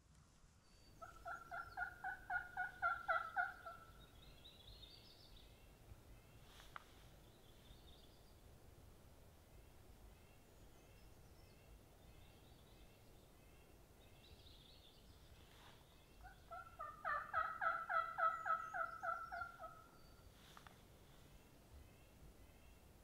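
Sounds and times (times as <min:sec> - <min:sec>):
songbird chirps: 0:00.1 - 0:23.0
turkey yelps: 0:01.0 - 0:03.8, 0:16.2 - 0:19.8.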